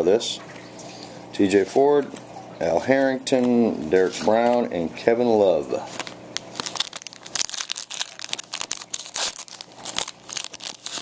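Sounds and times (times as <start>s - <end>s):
foil wrappers crinkling and tearing: 5.8s - 11.0s.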